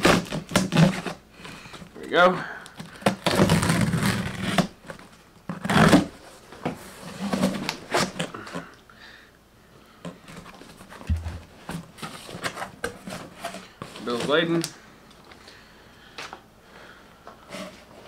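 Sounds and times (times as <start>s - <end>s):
knife slitting packing tape: 0.0s - 1.2s
cardboard flaps opening: 10.3s - 14.3s.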